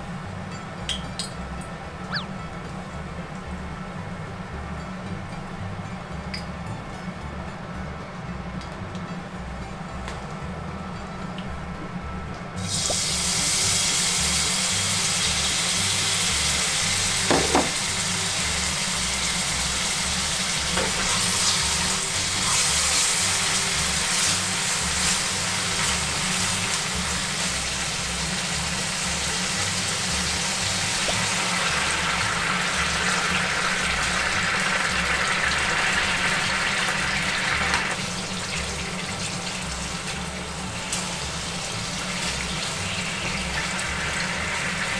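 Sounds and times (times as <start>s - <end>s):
hot oil sizzling in a frying pan: 12.6s - 44.9s
utensil knocking on pan: 17.3s - 17.8s.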